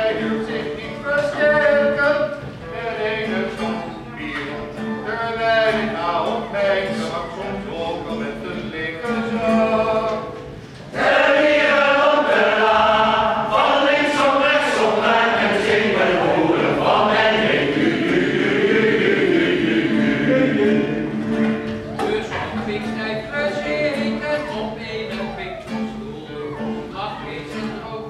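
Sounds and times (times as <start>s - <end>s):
mixed choir singing: 10.9s - 21.8s.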